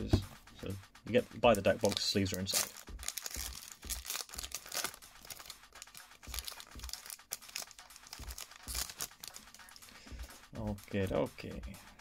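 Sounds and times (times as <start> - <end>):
foil wrapper crinkling: 1.7 - 9.8.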